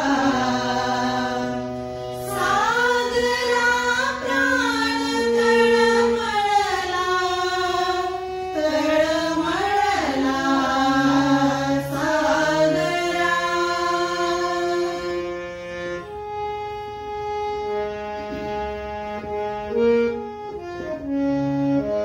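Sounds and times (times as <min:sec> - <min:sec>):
women singing together: 0:00.0 - 0:15.2
harmonium: 0:00.0 - 0:22.0.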